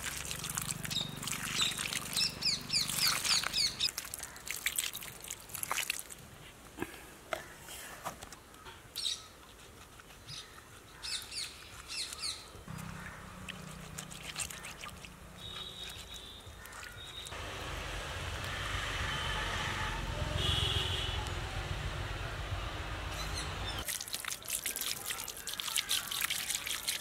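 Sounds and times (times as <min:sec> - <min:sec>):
water pouring and splashing: 0:00.0 - 0:06.4, 0:11.7 - 0:18.5, 0:23.8 - 0:27.0
birds chirping: 0:00.8 - 0:03.9, 0:23.0 - 0:23.9.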